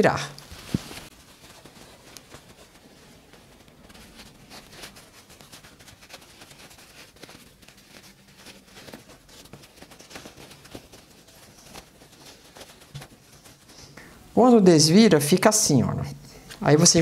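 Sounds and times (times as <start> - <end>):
fabric rustling and tapping: 0.4 - 13.8.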